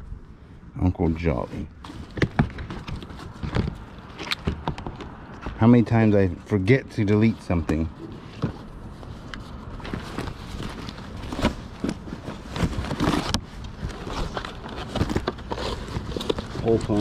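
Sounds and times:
rustling of cloth and paper: 1.2s - 17.0s
small knocks of objects: 2.1s - 5.6s.

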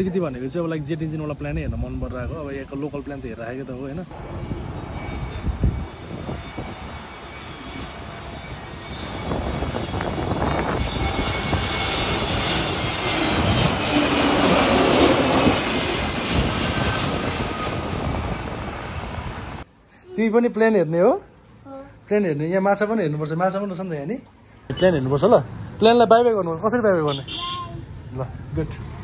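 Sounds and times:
jet airliner passing overhead: 0.0s - 19.7s, 23.0s - 29.0s
high engine whine: 4.1s - 19.7s.

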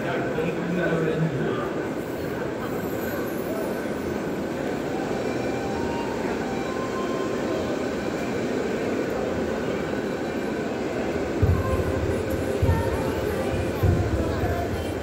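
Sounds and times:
indoor hall din: 11.1s - 15.0s.

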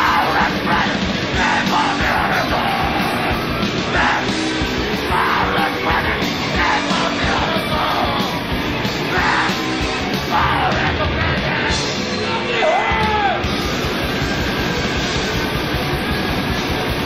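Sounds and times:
distorted rock band playing: 0.0s - 17.0s
person shouting: 12.5s - 13.5s.

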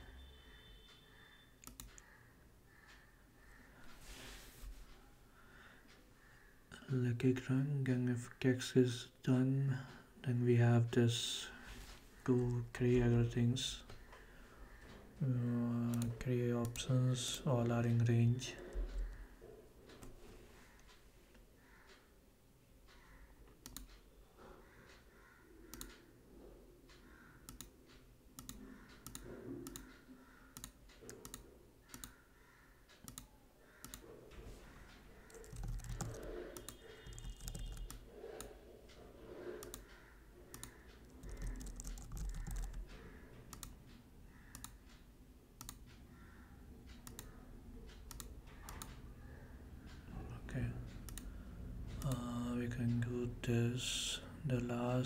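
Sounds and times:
keyboard typing: 1.6s - 2.1s, 23.5s - 24.0s, 25.7s - 26.0s, 27.4s - 27.7s, 28.4s - 32.2s, 33.0s - 38.6s, 39.3s - 43.8s, 44.4s - 44.8s, 45.6s - 46.0s, 46.9s - 49.0s, 51.0s - 51.3s.

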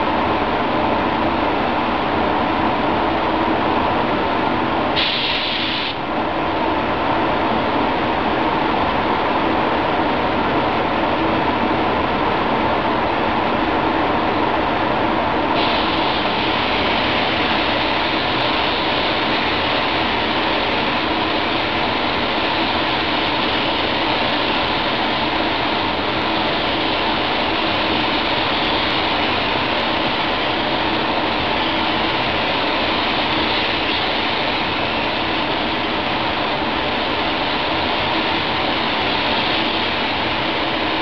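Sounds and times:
rush of air with hum: 0.0s - 41.0s
spray gun hissing: 5.0s - 6.0s, 15.6s - 41.0s.

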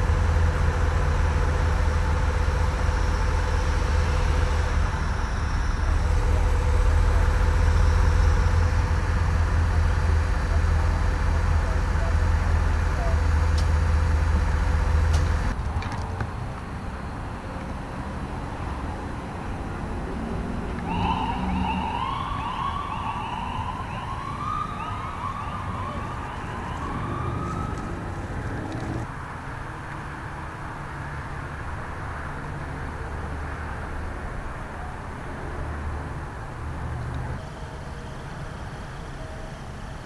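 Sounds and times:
idling vehicle engines: 0.0s - 40.0s
siren yelping: 20.8s - 29.0s.

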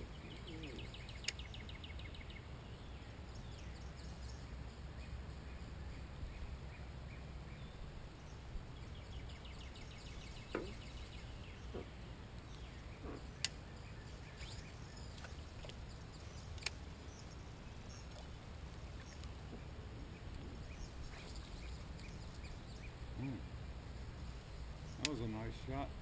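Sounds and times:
songbirds chirping and trilling: 0.0s - 26.0s
sharp clicks: 16.5s - 16.8s, 25.0s - 25.2s.

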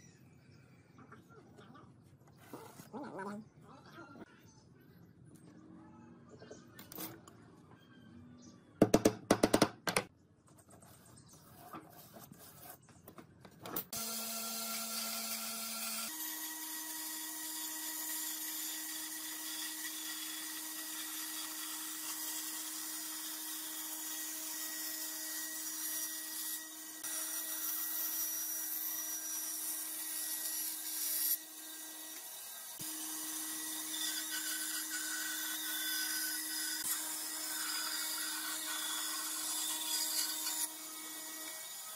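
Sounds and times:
band saw cutting wood: 13.9s - 41.9s.

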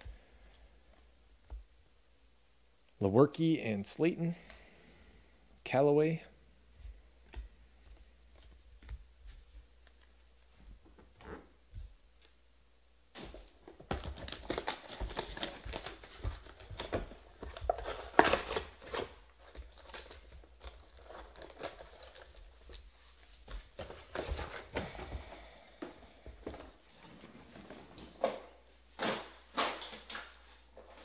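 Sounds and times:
packaging tearing and crinkling: 13.9s - 22.7s.

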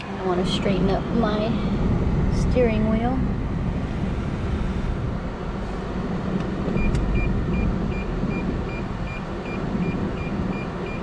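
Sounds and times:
air-conditioning fan rushing: 0.0s - 11.0s
parking sensor beeping: 6.7s - 11.0s.

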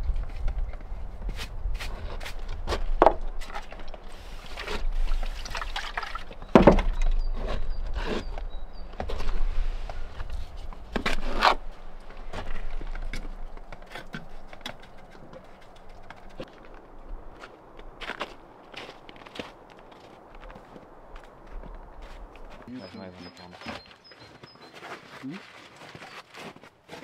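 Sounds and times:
stones knocking and scraping: 0.0s - 18.4s.

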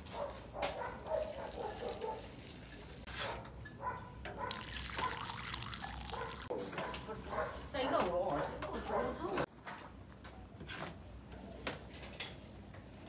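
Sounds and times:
broth pouring and splashing: 1.0s - 3.1s, 4.4s - 6.5s.

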